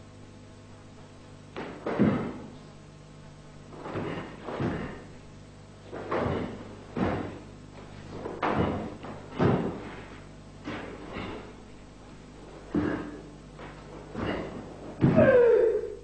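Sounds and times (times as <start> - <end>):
faint steady hum: 0.0 - 16.0
bare feet stamping on wood: 1.5 - 2.6, 3.7 - 5.2, 5.9 - 11.7, 12.5 - 15.4.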